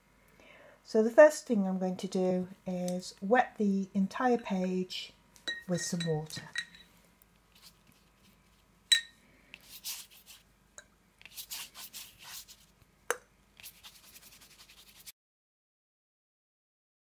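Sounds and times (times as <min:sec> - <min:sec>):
brush swishing across paper: 0:07.5 - 0:08.7, 0:09.6 - 0:10.5, 0:11.2 - 0:12.8, 0:13.6 - 0:15.1.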